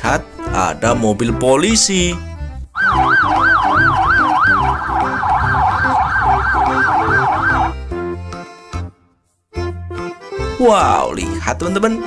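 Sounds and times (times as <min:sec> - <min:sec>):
police siren wailing: 0:02.8 - 0:07.9.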